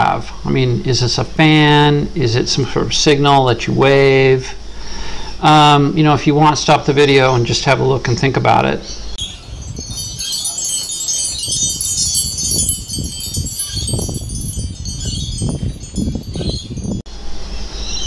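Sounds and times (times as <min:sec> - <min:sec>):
wind chimes tinkling: 0:09.2 - 0:17.1.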